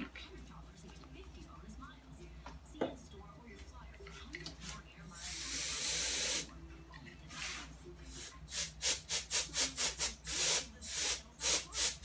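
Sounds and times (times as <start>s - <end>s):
air blowing hiss: 5.2s - 6.5s.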